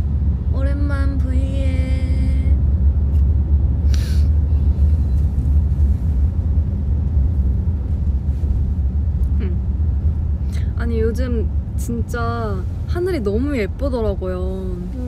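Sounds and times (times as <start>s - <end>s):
van cabin rumble: 0.0s - 15.0s
person humming: 9.4s - 9.7s.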